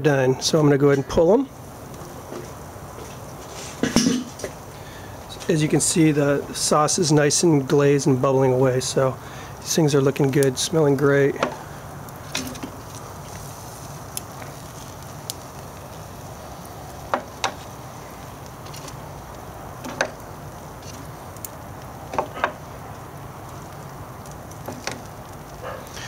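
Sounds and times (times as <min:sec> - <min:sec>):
sizzling hiss: 0:00.0 - 0:26.0.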